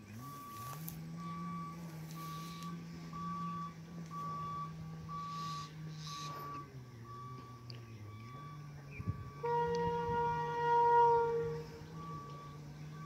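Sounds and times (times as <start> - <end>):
electronic warning beeps: 0.1 - 9.5, 11.6 - 13.0.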